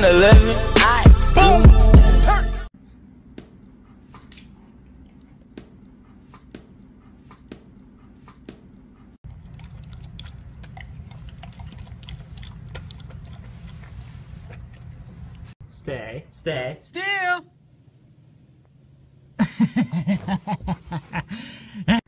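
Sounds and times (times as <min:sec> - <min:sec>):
dog crunching dry kibble: 0:09.3 - 0:15.4.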